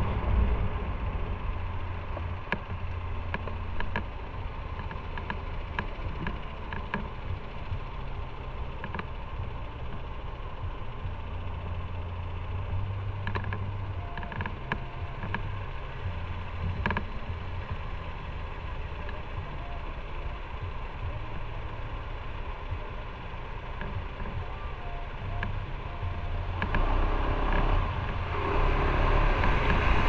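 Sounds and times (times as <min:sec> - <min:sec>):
motorcycle engine humming: 0:00.0 - 0:30.0
light clicks and taps: 0:13.2 - 0:15.5.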